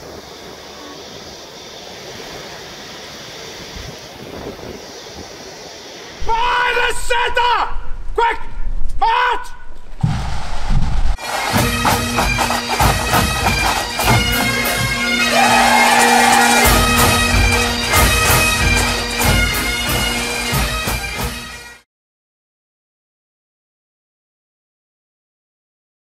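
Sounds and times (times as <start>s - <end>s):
bagpipe music: 11.2s - 21.8s.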